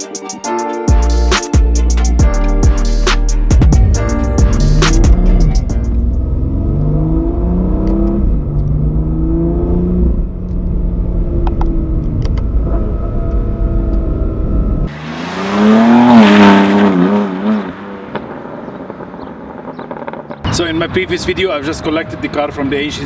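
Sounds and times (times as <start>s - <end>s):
car engine accelerating: 3.6s - 21.0s
car exhaust accelerating away: 4.5s - 20.5s.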